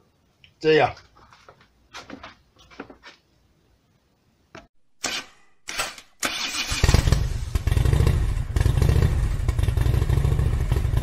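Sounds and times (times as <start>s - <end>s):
motorcycle engine starting: 5.8s - 11.0s.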